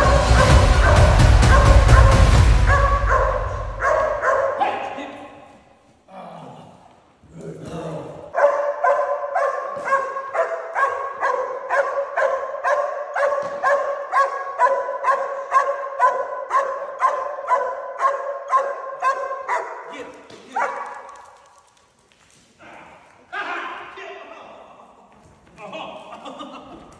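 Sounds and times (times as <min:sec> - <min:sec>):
dog barking: 0:00.0 - 0:05.0, 0:08.3 - 0:21.3.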